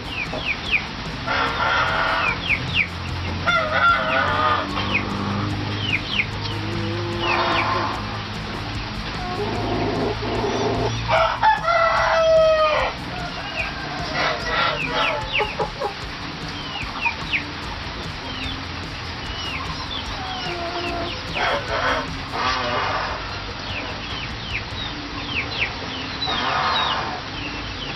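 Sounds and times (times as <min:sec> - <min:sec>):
high falling chirps: 0:00.0 - 0:26.3
rooster crowing: 0:03.4 - 0:04.9, 0:09.2 - 0:16.0.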